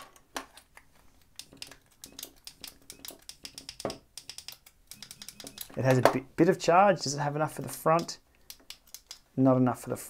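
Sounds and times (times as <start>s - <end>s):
small clicks and taps: 0.6s - 6.2s, 8.0s - 9.2s.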